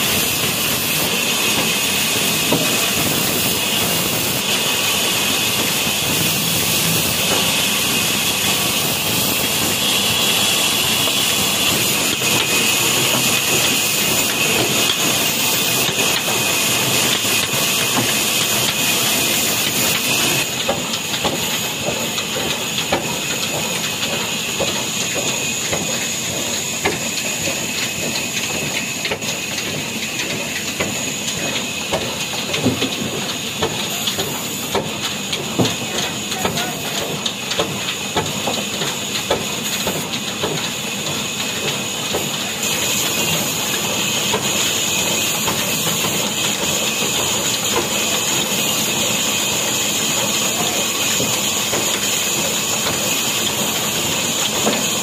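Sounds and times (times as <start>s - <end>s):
band saw cutting log: 0.0s - 29.9s
diesel engine chugging: 0.0s - 55.0s.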